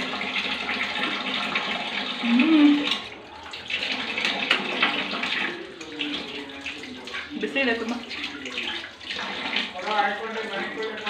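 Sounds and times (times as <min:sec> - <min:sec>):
tap running into sink: 0:00.0 - 0:11.0
person humming: 0:02.2 - 0:02.9.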